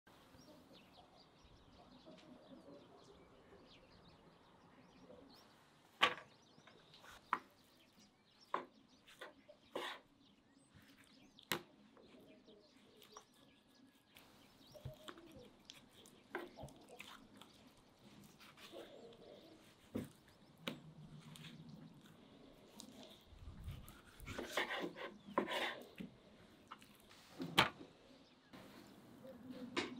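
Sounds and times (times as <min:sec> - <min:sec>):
faint bird chirps: 0:00.1 - 0:27.1.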